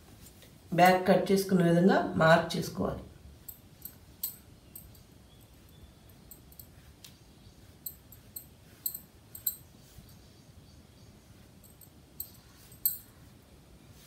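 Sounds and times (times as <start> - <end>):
faint light clicks of chalk: 3.5 - 10.2.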